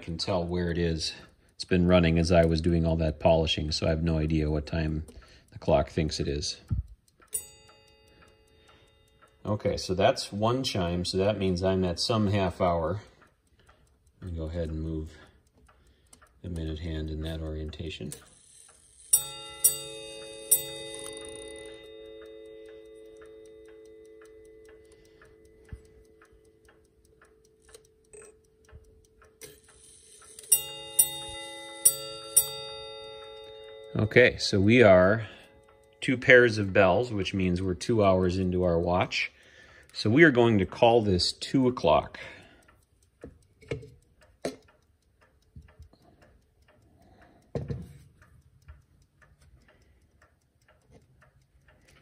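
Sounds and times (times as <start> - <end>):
clock ticking faintly: 0.0 - 52.0
clock bell striking: 7.3 - 10.4, 19.0 - 26.2, 30.2 - 37.7.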